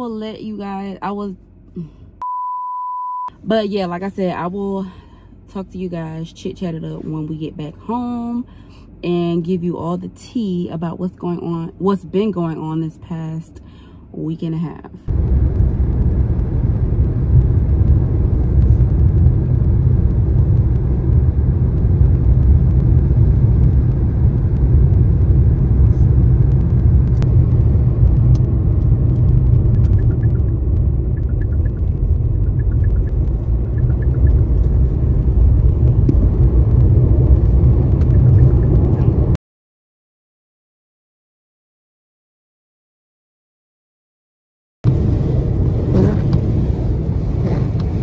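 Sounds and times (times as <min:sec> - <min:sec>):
car road rumble: 0:03.3 - 0:39.4, 0:44.8 - 0:48.0.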